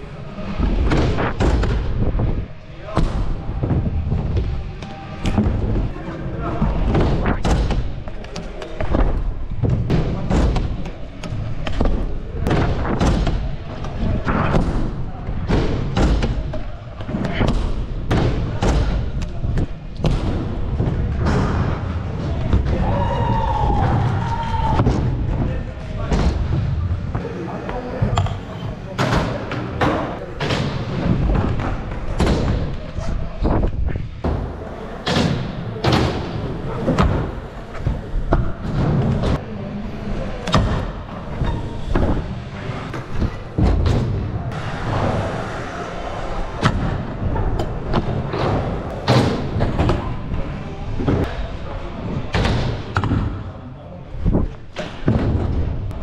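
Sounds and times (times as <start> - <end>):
scooter wheels rumbling: 29.6 - 51.2.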